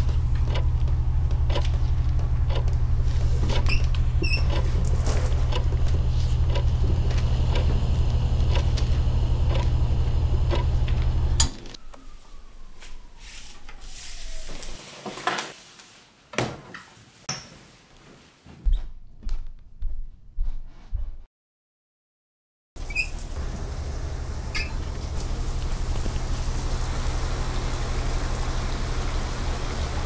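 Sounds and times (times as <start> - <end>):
knocks and clicks: 0.0 - 2.8, 10.4 - 11.7
loud low hum: 0.0 - 11.6, 23.3 - 30.0
faint ticking: 8.4 - 9.8.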